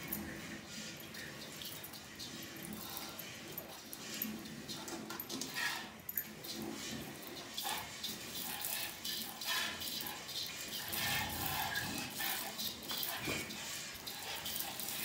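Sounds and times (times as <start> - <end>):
milk squirting into a pail: 4.5 - 15.0.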